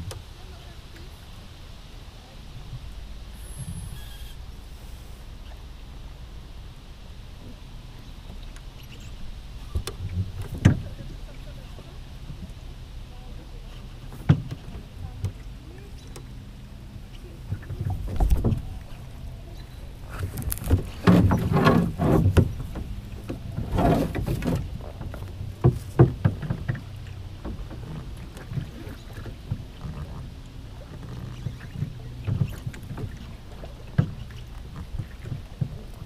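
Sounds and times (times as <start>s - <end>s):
water splashing along hull: 0.0s - 36.0s
wooden knocks in boat: 9.7s - 12.6s, 13.7s - 16.4s, 17.4s - 36.0s.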